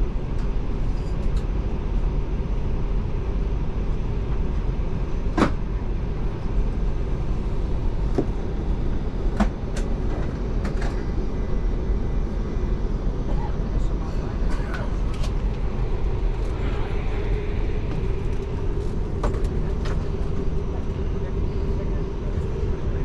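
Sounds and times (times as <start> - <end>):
aircraft cabin air-conditioning hum: 0.0 - 23.0.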